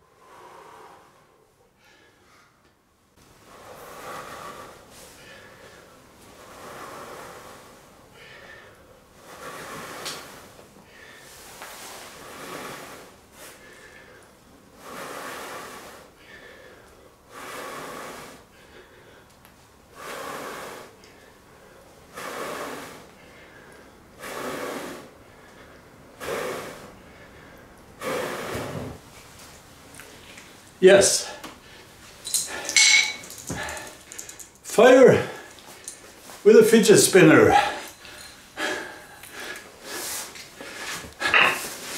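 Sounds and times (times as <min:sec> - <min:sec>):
man blowing hard into tinder: 0:24.2 - 0:25.2, 0:28.0 - 0:28.9.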